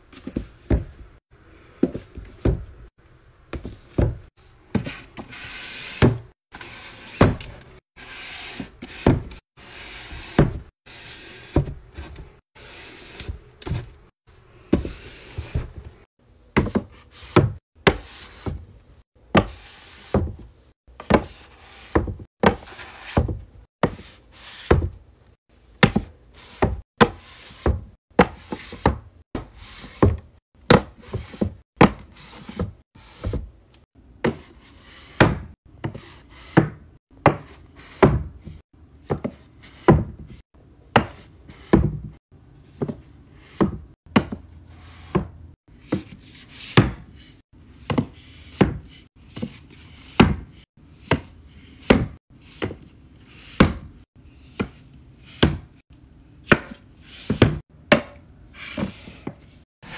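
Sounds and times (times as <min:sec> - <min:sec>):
books knocking on wooden shelf: 0:00.1 - 0:01.1, 0:01.8 - 0:02.9, 0:03.5 - 0:05.0, 0:10.1 - 0:10.7, 0:11.4 - 0:12.3, 0:13.2 - 0:14.0, 0:14.7 - 0:16.0.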